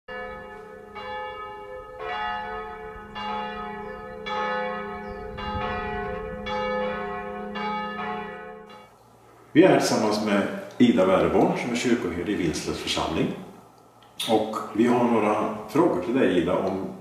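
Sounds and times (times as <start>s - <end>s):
church bells ringing: 0.1s - 9.0s.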